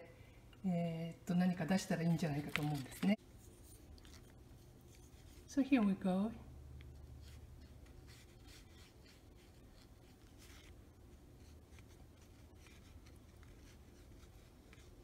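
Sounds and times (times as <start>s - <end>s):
brush scratching on card: 2.2s - 5.6s, 6.9s - 15.0s.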